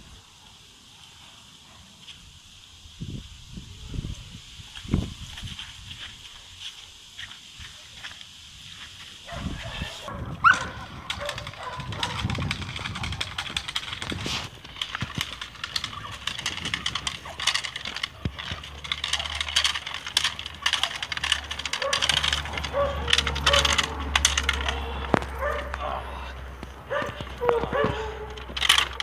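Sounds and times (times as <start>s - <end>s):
dog barking: 9.3s - 12.2s, 21.8s - 22.1s, 22.7s - 23.8s, 24.5s - 25.8s, 26.9s - 28.4s
short clicks and rustles: 10.9s - 25.8s, 26.6s - 29.0s.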